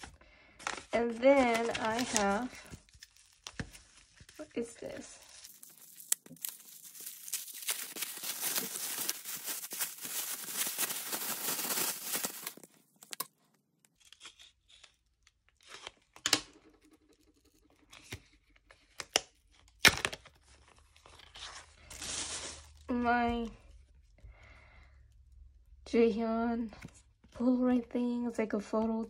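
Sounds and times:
paper and card rustling: 0.0s - 13.2s
paper packaging tearing: 0.6s - 4.4s, 5.2s - 13.2s.

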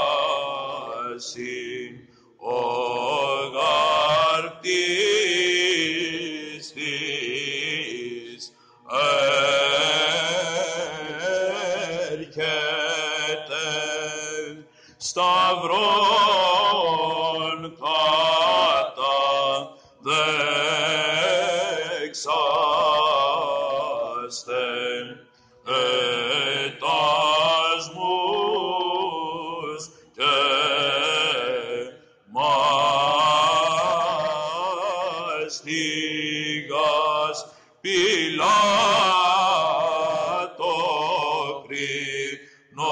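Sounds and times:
man chanting: 0.0s - 42.9s
steady held vocal drone: 0.0s - 42.9s.

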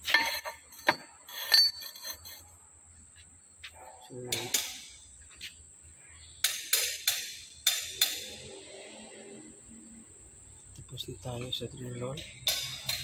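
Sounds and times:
metal-on-metal clinks: 0.1s - 2.4s.

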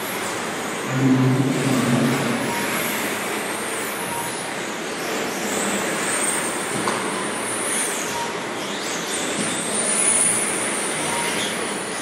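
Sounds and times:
remote control trucks racing: 5.0s - 12.0s.

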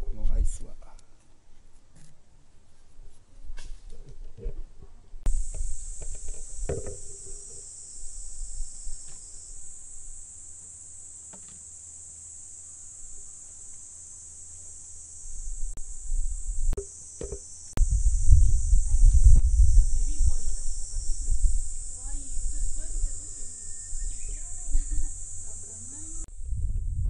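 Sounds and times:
insects chirring: 5.3s - 26.6s
low rumble: 26.2s - 27.0s.

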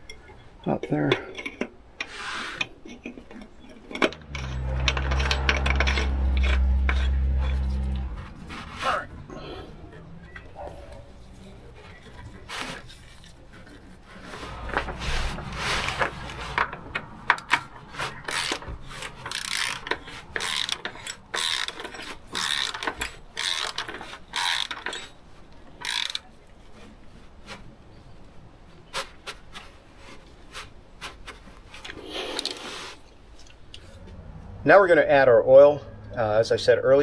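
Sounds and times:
rubbing and scraping: 1.6s - 25.1s, 26.6s - 34.4s
ratchet wrench clicking: 18.3s - 25.1s, 25.8s - 26.2s.

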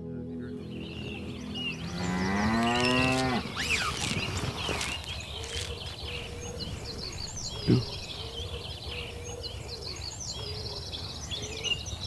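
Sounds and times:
small birds chirping: 0.0s - 12.0s
cow mooing: 1.8s - 3.6s.

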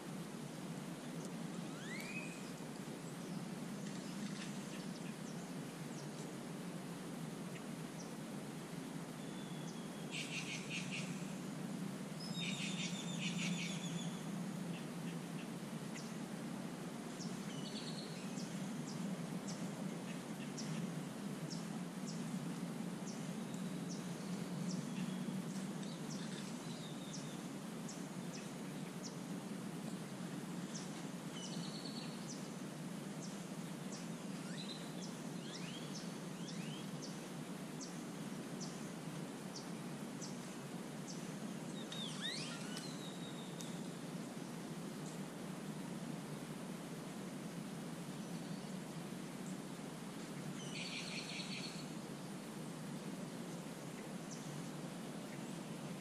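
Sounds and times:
bird chirps: 1.7s - 2.5s, 9.2s - 11.2s, 12.2s - 14.2s, 41.8s - 43.8s, 50.6s - 51.9s.

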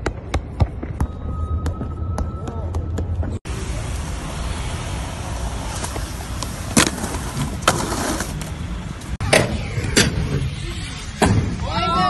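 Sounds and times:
skateboard wheels rolling on concrete: 2.4s - 12.0s
road traffic: 2.7s - 12.0s.

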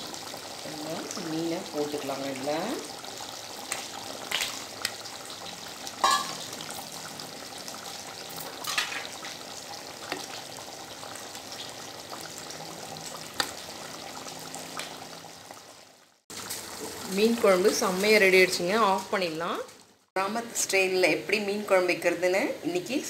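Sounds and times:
curry bubbling in a pot: 0.0s - 17.1s.

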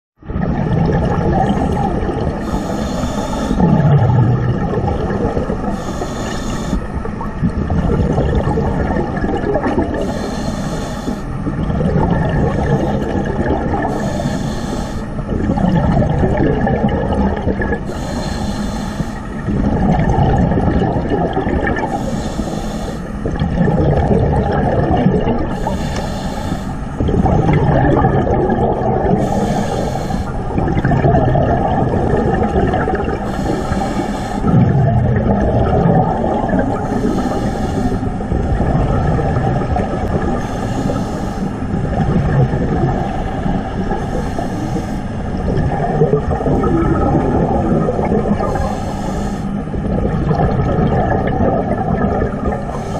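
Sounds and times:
exhaled bubbles underwater: 0.2s - 52.9s
underwater regulator rumble: 0.2s - 52.9s.

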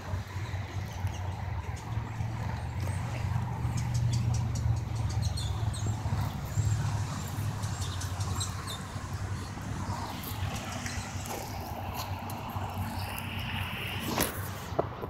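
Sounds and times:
low engine rumble: 0.0s - 15.0s
footsteps on gravel: 6.1s - 14.8s.

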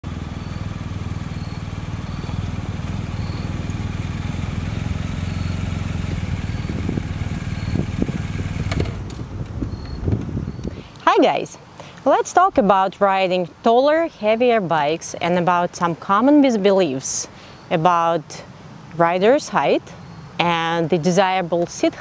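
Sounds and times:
motorcycle engine at low revs: 0.0s - 10.8s.

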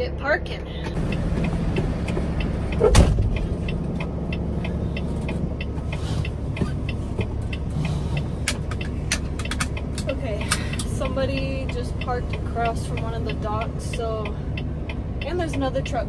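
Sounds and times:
diesel engine idling: 0.0s - 16.0s
even ticking: 0.9s - 16.0s
loud clunk: 2.8s - 3.3s
seatbelt buckle clicks: 8.4s - 10.1s.

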